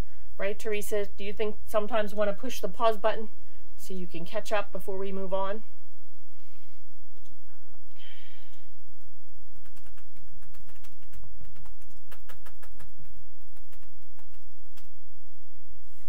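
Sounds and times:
marker tapping on whiteboard: 9.5 - 14.9.

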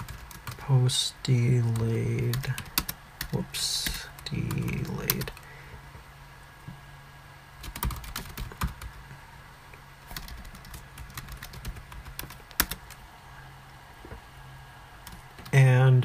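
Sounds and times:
computer keyboard typing: 0.0 - 0.6, 1.7 - 5.4, 7.6 - 9.0, 10.1 - 13.0, 15.0 - 15.5.

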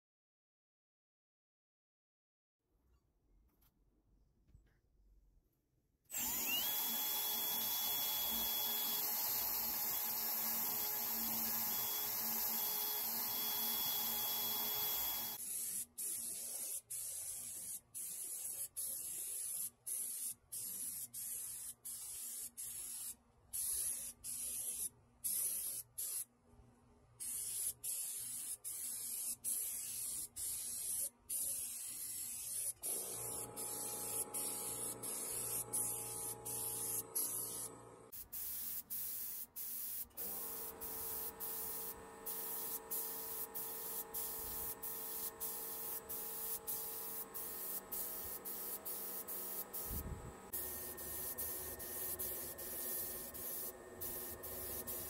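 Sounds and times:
power drill motor whine: 6.1 - 15.4
paint spray gun hissing: 6.2 - 26.2, 27.2 - 55.0.

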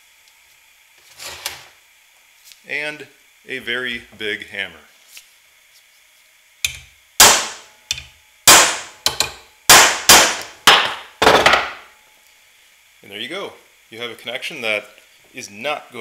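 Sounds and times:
hammer striking steel punch: 6.6 - 11.8.

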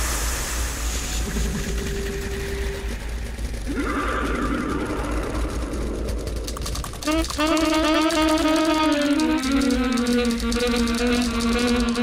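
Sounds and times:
steady low hum: 0.0 - 12.0
rapid mechanical clicks: 1.0 - 12.0.

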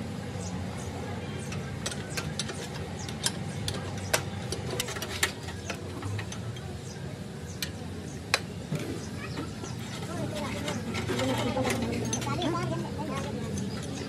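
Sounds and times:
sharp clicks and knocks: 1.4 - 6.7.

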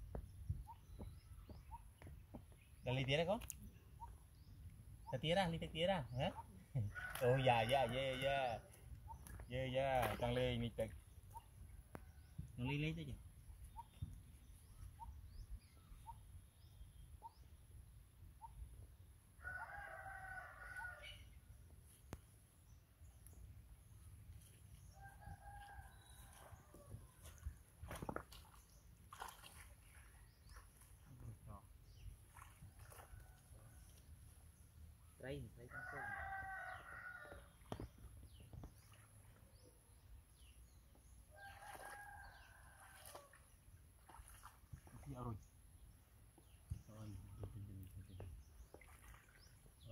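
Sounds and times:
rooster crowing: 19.4 - 21.1, 35.7 - 37.4.

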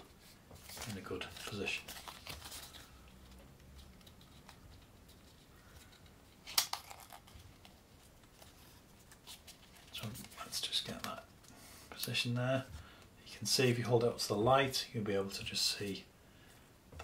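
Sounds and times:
paper rustling: 0.2 - 11.2.

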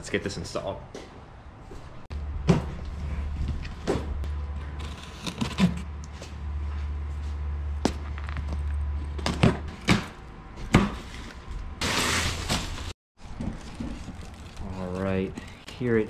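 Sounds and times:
knife cutting packing tape: 4.8 - 5.8.

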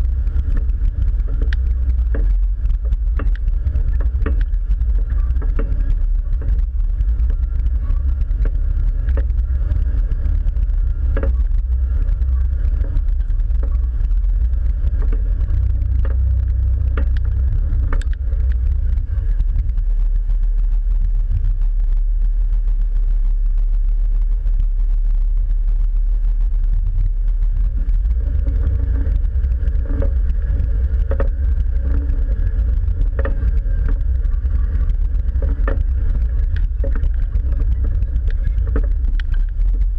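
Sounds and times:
low engine rumble: 0.0 - 39.9.

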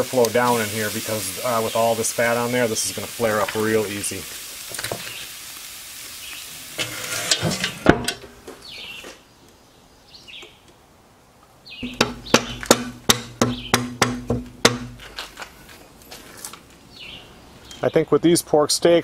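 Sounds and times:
bird chirping: 1.4 - 3.1, 5.0 - 5.4, 6.2 - 6.6, 8.6 - 10.9, 11.6 - 12.8, 13.4 - 14.0, 16.8 - 18.2
metal knocks on grill: 11.8 - 15.2.

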